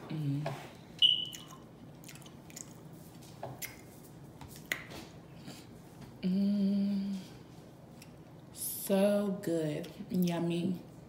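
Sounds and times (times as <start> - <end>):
chewing and lip smacking: 1.0 - 3.9
person humming mmm: 6.2 - 7.3.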